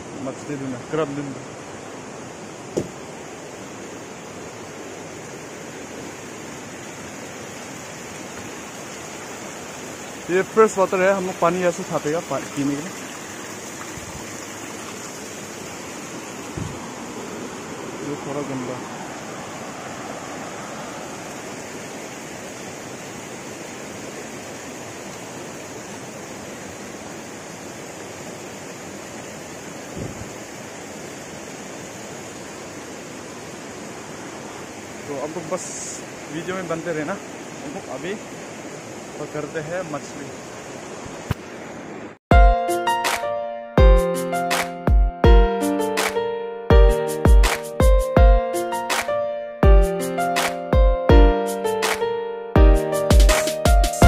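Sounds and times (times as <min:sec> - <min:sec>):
stream water rushing over rocks: 0:00.0 - 0:54.0
low thump: 0:02.7 - 0:03.0, 0:16.5 - 0:16.8
water trickling down rock face: 0:06.6 - 0:16.6.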